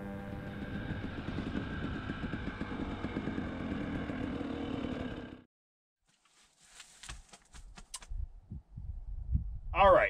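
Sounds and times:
dirt bike engine running: 0.0s - 5.5s.

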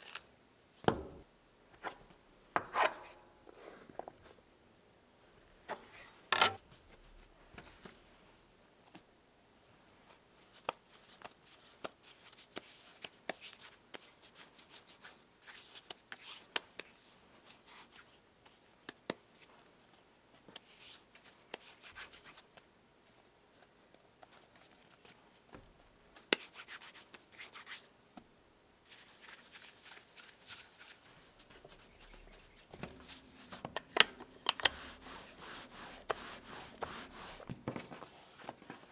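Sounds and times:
hands patting dough: 28.9s - 38.9s
rolling pin rolling dough: 31.4s - 38.3s.

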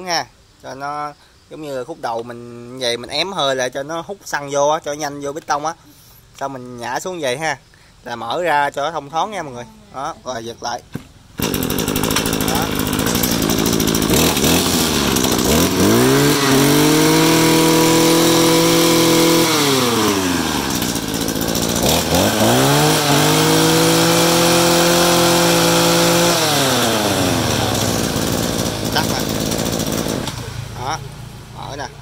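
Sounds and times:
brush cutter engine revving: 11.4s - 32.0s.

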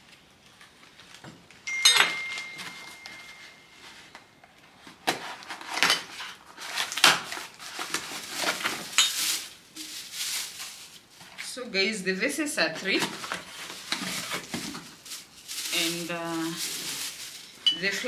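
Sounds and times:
cardboard and wrapping rustling: 0.1s - 11.6s, 12.7s - 18.0s
cardboard box tearing: 5.0s - 8.9s
knife slitting packing tape: 5.0s - 8.9s.

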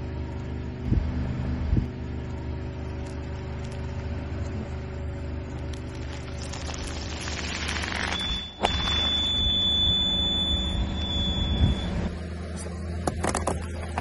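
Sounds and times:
car engine running: 0.0s - 14.0s
tyre crushing plastic bag: 5.6s - 8.2s.

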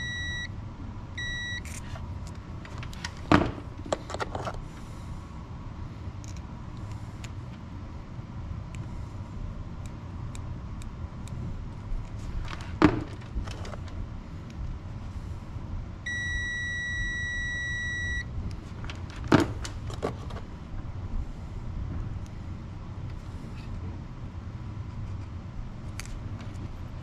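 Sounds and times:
multimeter steady beep: 0.0s - 0.6s, 1.2s - 1.7s, 16.1s - 18.3s.

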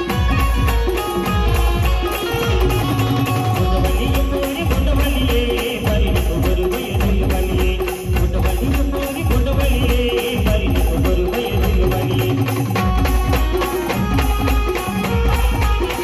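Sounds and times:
keyboard melody: 0.0s - 5.5s
heavy pulsing bass drum beat: 0.0s - 16.0s
steady cymbal rhythm: 0.0s - 16.0s.

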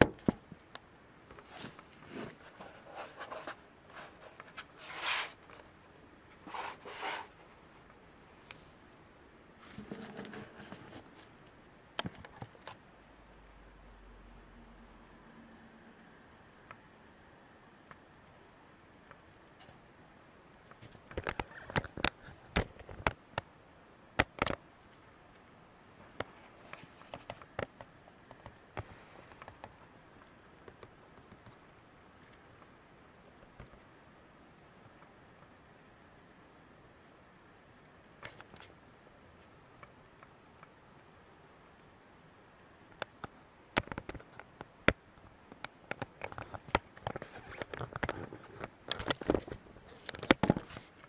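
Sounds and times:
hands rustling on laptop: 1.3s - 5.7s, 45.9s - 51.0s
fingers tapping laptop: 26.2s - 31.9s.

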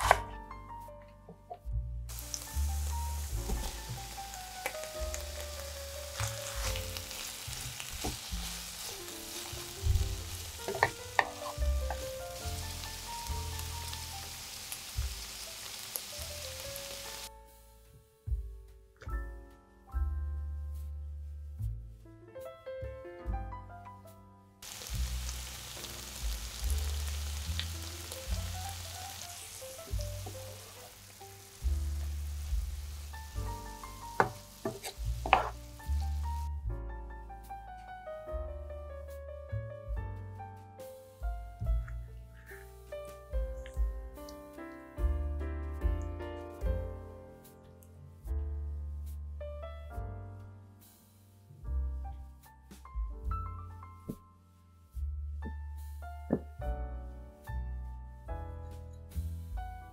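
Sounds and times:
background music with bass: 0.0s - 14.4s, 17.3s - 30.7s, 31.3s - 59.9s
crackling hiss: 2.1s - 17.3s, 24.6s - 36.5s.

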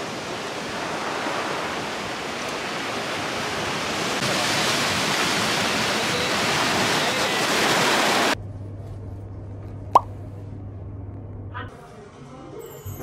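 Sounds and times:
surf breaking on rocky shore: 0.0s - 8.4s.

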